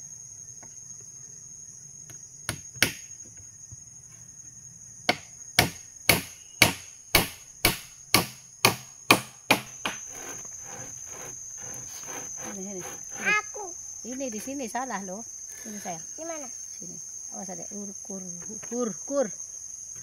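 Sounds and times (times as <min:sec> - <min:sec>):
hammer striking nails into wood: 0:05.1 - 0:10.9.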